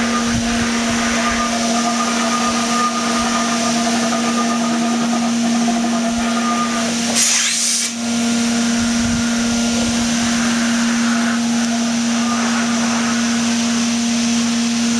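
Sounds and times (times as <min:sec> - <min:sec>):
turbine blower humming: 0:00.0 - 0:14.9
brief air hiss: 0:07.1 - 0:08.0.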